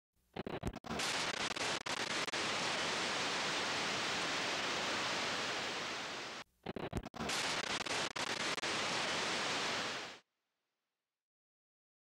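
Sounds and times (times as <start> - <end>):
crackling clicks: 0.4 - 2.6, 6.6 - 8.9
videotape static hiss: 0.4 - 10.2.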